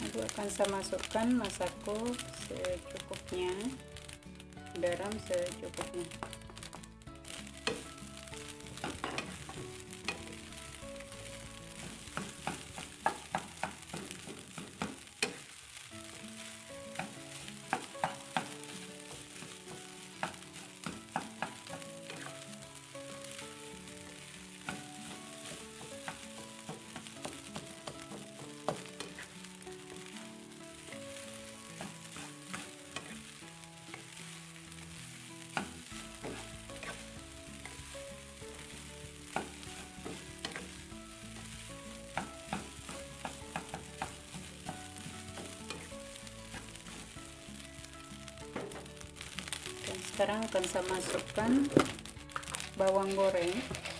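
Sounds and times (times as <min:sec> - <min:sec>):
rice sizzling in a wok: 0:00.0 - 0:53.9
spatula scraping and tapping pan: 0:07.3 - 0:07.9, 0:08.7 - 0:10.4, 0:11.2 - 0:15.5, 0:16.4 - 0:22.4, 0:24.1 - 0:29.4, 0:30.9 - 0:47.4, 0:50.2 - 0:53.9.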